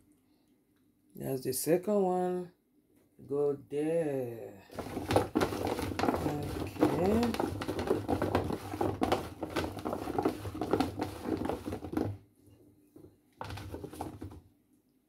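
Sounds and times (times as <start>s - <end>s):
hand rummaging through carrot pieces: 4.7s - 12.2s.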